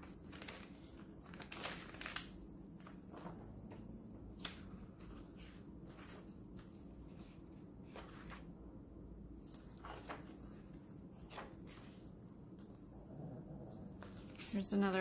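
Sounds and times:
paper pages turning: 0.0 - 3.4, 4.4 - 8.5, 9.4 - 12.7
low room hum: 0.0 - 15.0.

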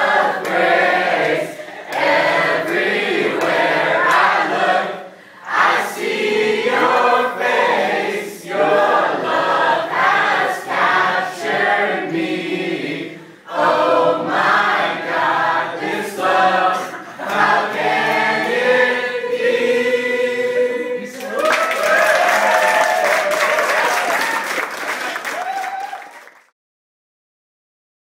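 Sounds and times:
group of voices singing: 0.0 - 21.5.

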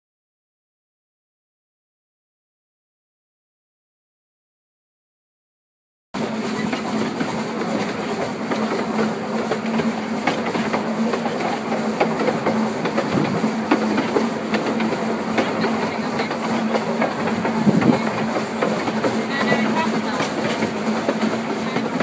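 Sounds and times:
train wheels rumbling on rails: 6.2 - 22.0.

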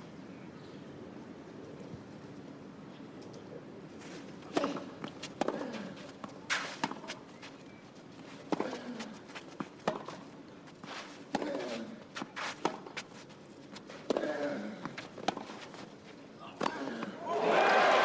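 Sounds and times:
racket hitting tennis ball: 9.6 - 10.2.

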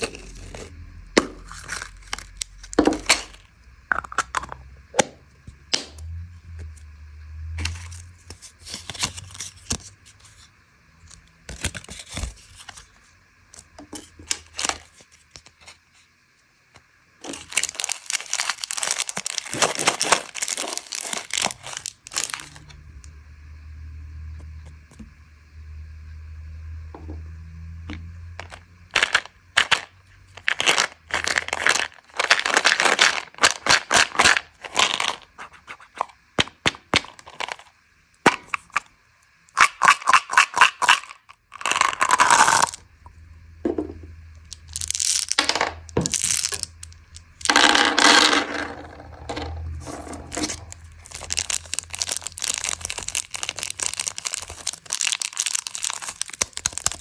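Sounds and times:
plastic wrapper crinkling: 0.0 - 0.7, 1.3 - 3.5, 7.6 - 10.4, 11.0 - 13.0, 13.6 - 15.8, 17.2 - 22.8, 28.4 - 36.0, 44.4 - 47.6, 49.6 - 57.0.

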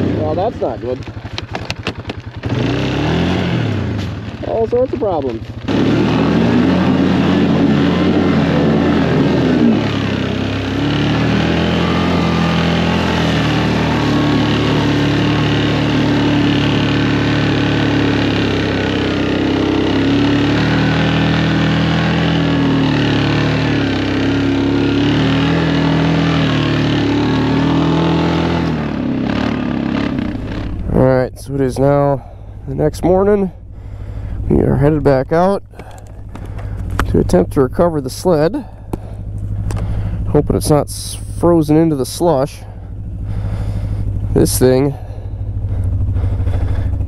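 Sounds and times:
vehicle engine running: 0.0 - 47.0.

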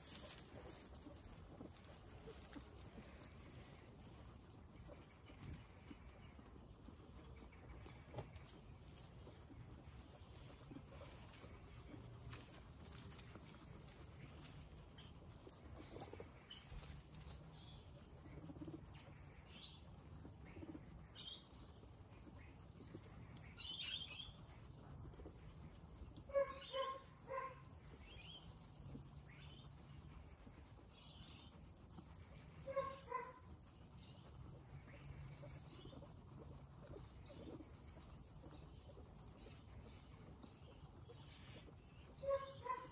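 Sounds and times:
straw rustling: 0.0 - 5.9, 8.0 - 18.5
guinea pig chirps: 0.0 - 42.9
guinea pigs munching: 0.0 - 42.9.

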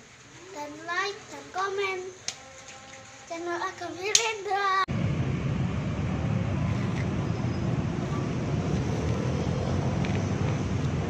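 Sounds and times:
road traffic rumble: 4.6 - 11.0
wind buffeting microphone: 4.9 - 11.0.

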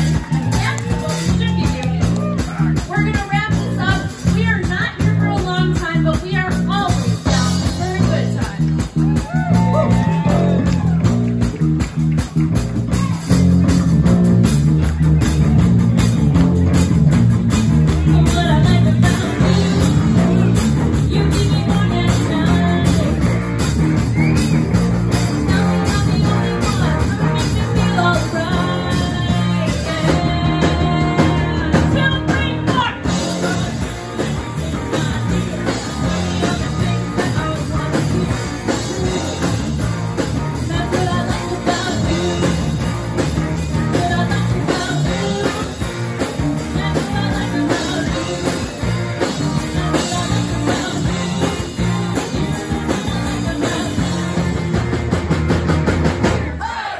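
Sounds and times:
drum kit beat: 0.0 - 56.9
rock band playing: 0.0 - 56.9
woman singing into a microphone: 21.1 - 23.1, 25.5 - 33.9, 34.6 - 39.4, 40.6 - 42.5, 43.8 - 45.8, 46.6 - 48.6, 49.2 - 54.2.

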